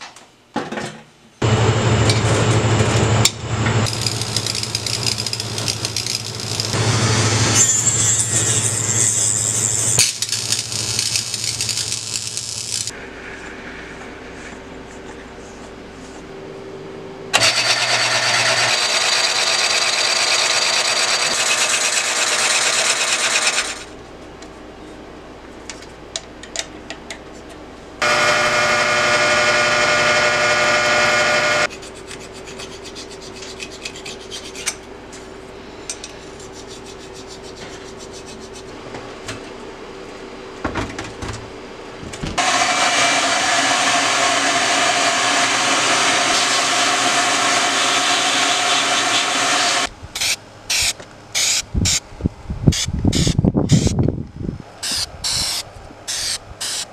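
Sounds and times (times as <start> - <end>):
abrasive disc grinding metal: 3.9 - 12.9, 28.0 - 31.7
sandblaster hissing: 3.9 - 12.9, 42.4 - 52.0, 54.8 - 56.9.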